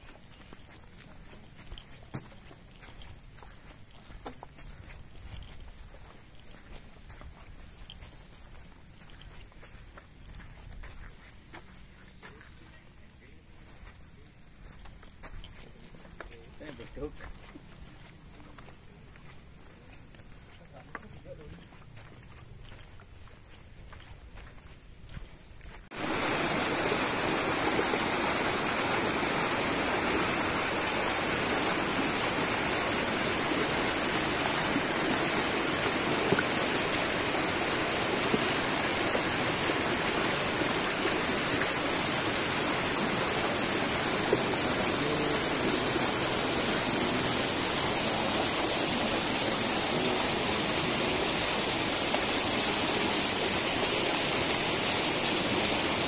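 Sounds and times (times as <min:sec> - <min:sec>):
water rushing: 0:25.9 - 0:56.0.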